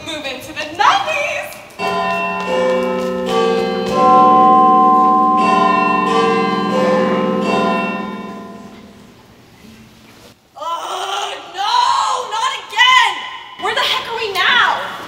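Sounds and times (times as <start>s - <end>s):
large bells chiming: 1.8s - 9.2s.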